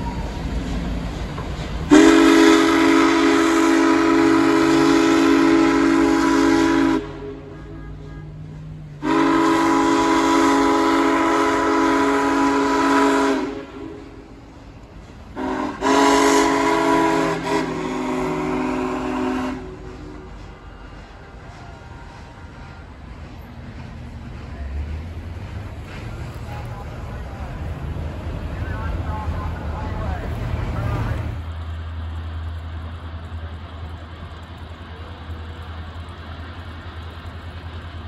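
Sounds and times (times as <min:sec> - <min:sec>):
steam whistle chord blasts: 0:01.9 - 0:08.3, 0:09.0 - 0:14.3, 0:15.4 - 0:21.0.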